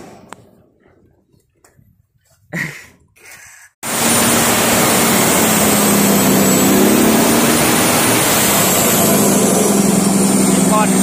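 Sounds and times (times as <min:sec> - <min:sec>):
diesel truck engine running: 0:03.8 - 0:11.0.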